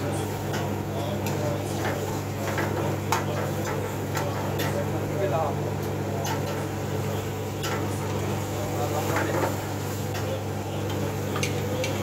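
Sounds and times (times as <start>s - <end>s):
exhaust fan hum: 0.0s - 12.0s.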